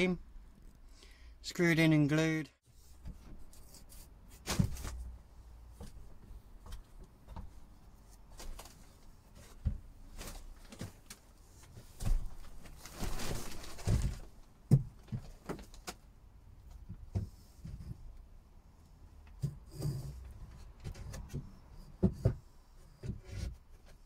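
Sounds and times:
scraping rustle: 0:08.2 - 0:14.4
knocks and bumps: 0:11.8 - 0:16.0, 0:19.3 - 0:24.0.

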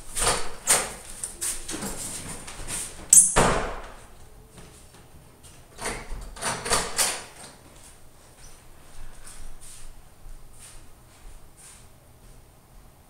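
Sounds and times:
door slamming shut: 0:03.2 - 0:04.0.

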